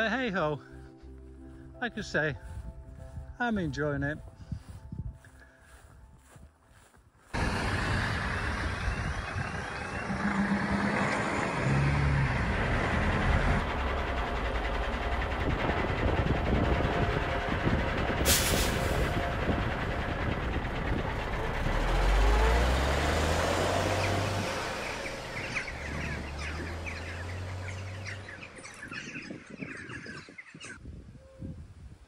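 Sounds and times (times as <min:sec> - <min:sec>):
vehicle passing: 0:07.4 - 0:18.3, 0:19.0 - 0:29.4.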